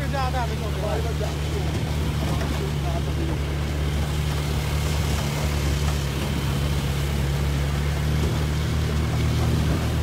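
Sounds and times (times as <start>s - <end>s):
truck engine humming: 0.0s - 10.0s.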